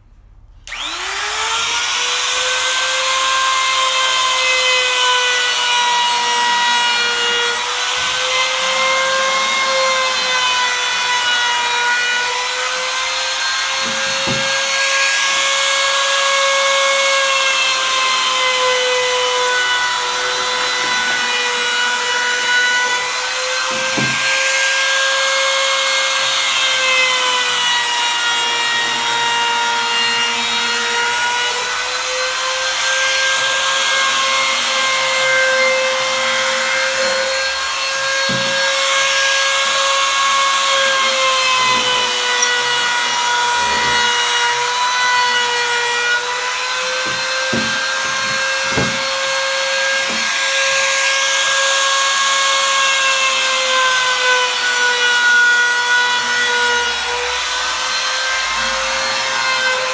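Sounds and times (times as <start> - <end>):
trim router whining and cutting wood: 0.6 - 59.9.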